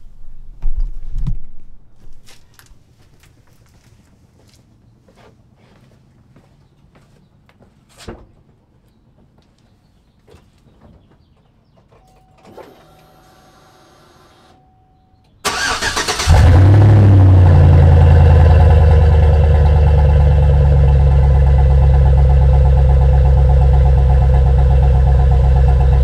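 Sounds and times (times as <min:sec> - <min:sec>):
truck engine cranking: 0:15.5 - 0:17.9
engine deep idle: 0:15.5 - 0:26.0.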